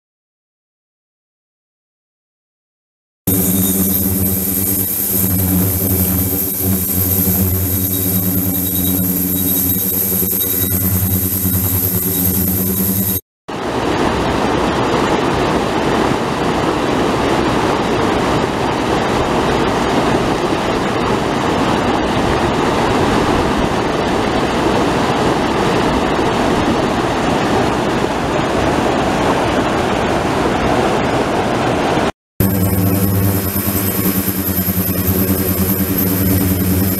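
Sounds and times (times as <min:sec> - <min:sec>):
river water rushing over weir: 0:13.6 - 0:35.2.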